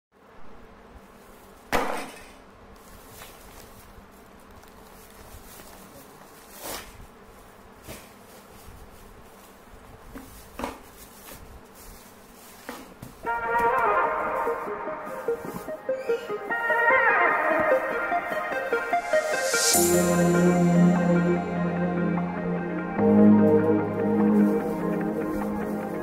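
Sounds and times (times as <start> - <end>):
plastic bag crinkling: 2.8 - 12.7.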